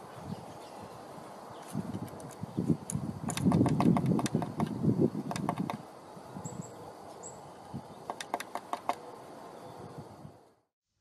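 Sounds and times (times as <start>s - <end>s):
bird clicking calls: 3.3s - 4.7s, 5.3s - 5.8s, 8.0s - 9.0s.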